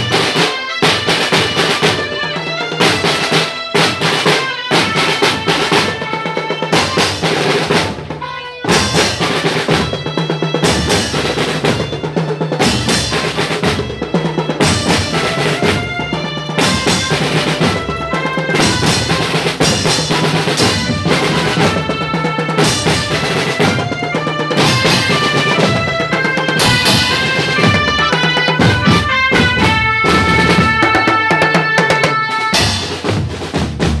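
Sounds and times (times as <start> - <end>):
marching drums beating: 0.0 - 34.0.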